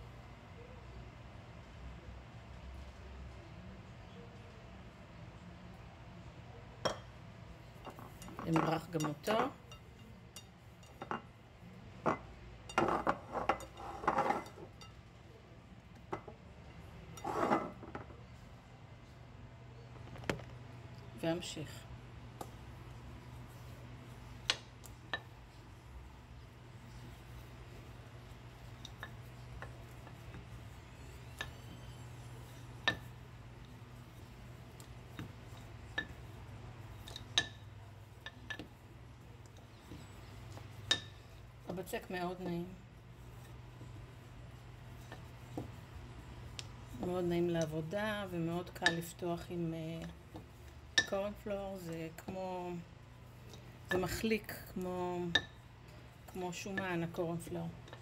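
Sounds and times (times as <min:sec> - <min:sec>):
steady low hum: 0:04.7 - 0:58.0
kitchenware clinking: 0:07.8 - 0:11.3, 0:12.0 - 0:15.0.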